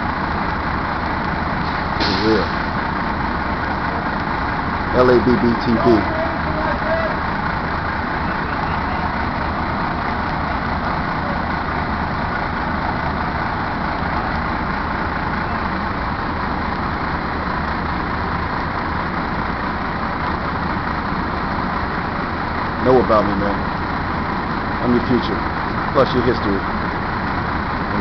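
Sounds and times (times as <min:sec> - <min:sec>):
diesel engines idling: 0:00.0 - 0:28.0.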